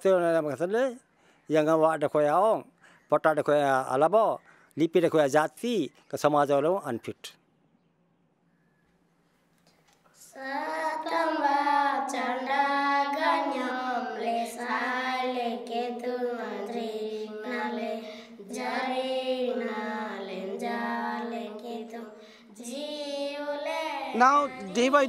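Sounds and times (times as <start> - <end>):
children singing a prayer: 10.2 - 25.0.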